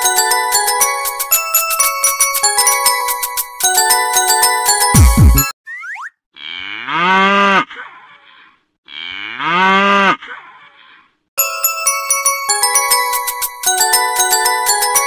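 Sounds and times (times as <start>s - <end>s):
glockenspiel-like music: 0.0s - 5.5s, 11.4s - 15.0s
cow mooing: 6.4s - 7.7s, 8.9s - 10.2s.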